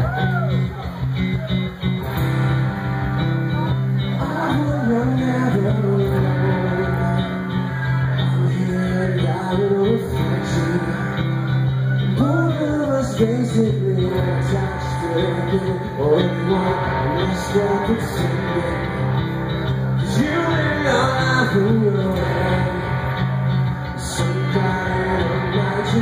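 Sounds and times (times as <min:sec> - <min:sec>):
amplified electric guitar: 0:00.0 - 0:26.0
bass guitar: 0:00.0 - 0:26.0
person singing: 0:03.5 - 0:26.0.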